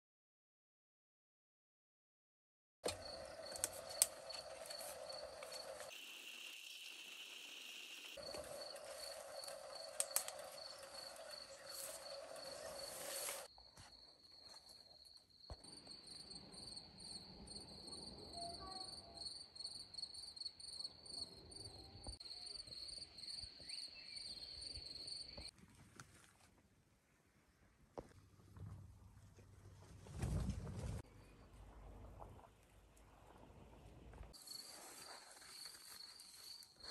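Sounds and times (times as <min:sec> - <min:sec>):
cricket chirping: 0:02.9 - 0:25.5, 0:34.4 - 0:36.9.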